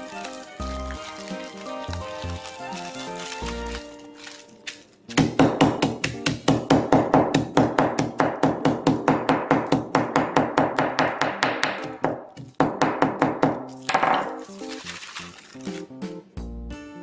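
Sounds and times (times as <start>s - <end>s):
mallet pounding cookies in bag: 5.1s - 14.4s.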